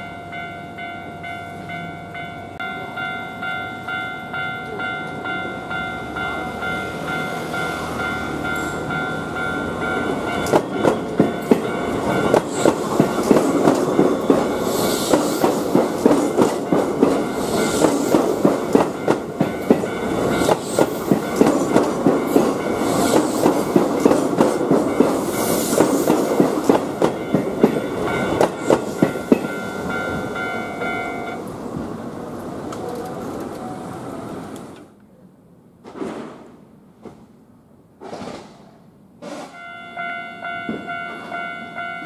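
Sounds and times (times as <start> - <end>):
crossing warning bell ringing: 0.0 - 31.5, 39.5 - 42.0
train wheels clattering: 6.3 - 31.3.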